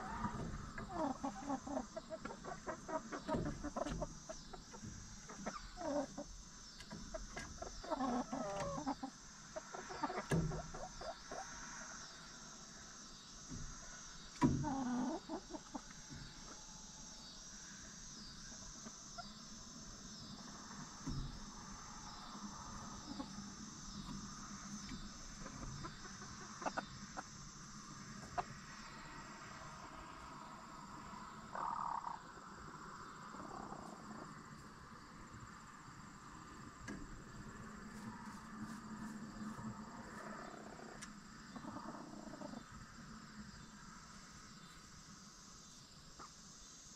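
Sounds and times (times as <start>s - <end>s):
hens clucking: 0.0s - 11.9s, 14.5s - 16.6s, 22.7s - 27.4s, 28.1s - 28.7s, 31.5s - 32.3s, 40.4s - 42.7s
high insect chirp: 0.0s - 46.9s.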